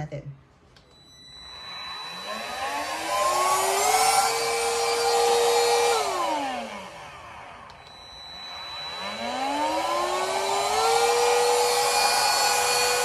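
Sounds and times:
handheld vacuum motor whine: 0:00.9 - 0:13.0.

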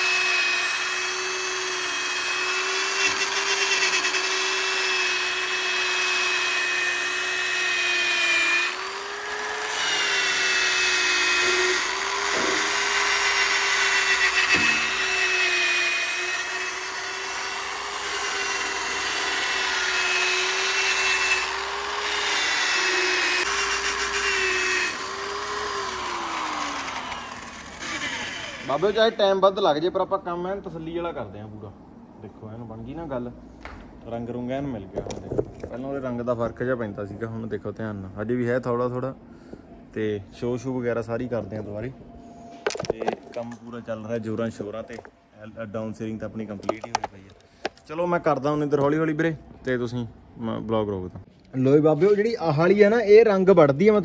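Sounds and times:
electric polisher whining: 0:00.0 - 0:29.2.

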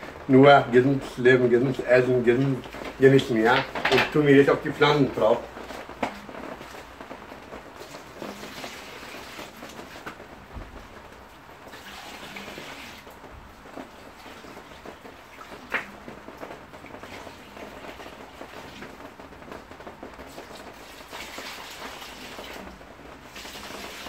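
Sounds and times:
liquid pouring onto soil: 0:11.7 - 0:13.1.

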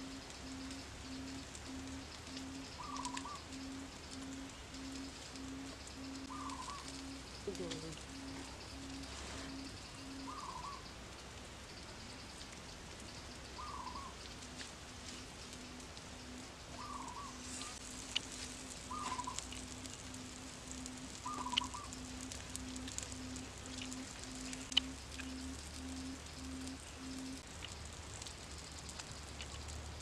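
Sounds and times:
low pulsing tone: 0:00.0 - 0:10.4, 0:15.6 - 0:27.4
fire crackling and popping: 0:00.0 - 0:30.0
bird warbling calls: 0:00.5 - 0:10.9, 0:13.6 - 0:14.2, 0:16.3 - 0:27.4.

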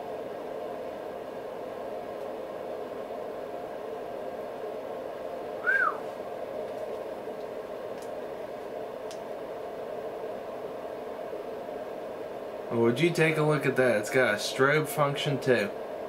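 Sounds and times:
room noise hum: 0:00.0 - 0:16.0
whistled note: 0:05.6 - 0:06.1.

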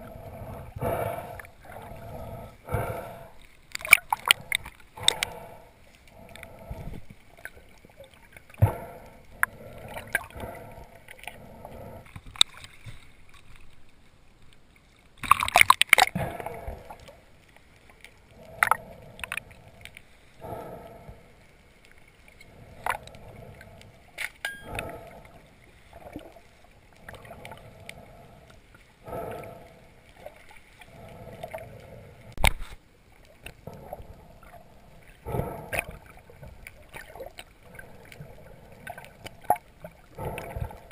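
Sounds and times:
muffled underwater gurgling: 0:00.0 - 0:12.2, 0:33.2 - 0:40.9.

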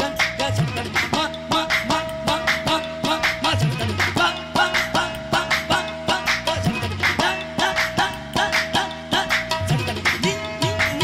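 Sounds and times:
tabla brisk rhythm: 0:00.0 - 0:11.0.

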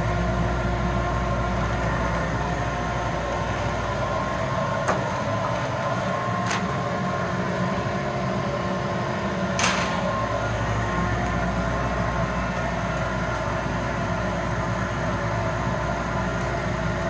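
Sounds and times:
mechanical drone: 0:00.0 - 0:17.0
wire shelves clacking: 0:09.5 - 0:10.3.

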